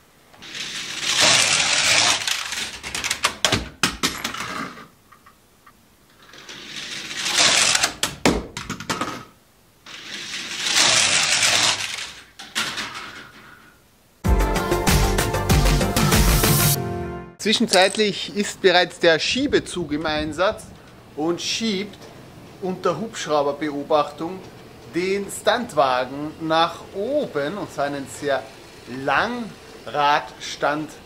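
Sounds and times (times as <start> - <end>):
toy car rattling on plastic track: 0.4 - 4.9, 6.2 - 9.3, 9.9 - 13.6
music: 14.2 - 17.4.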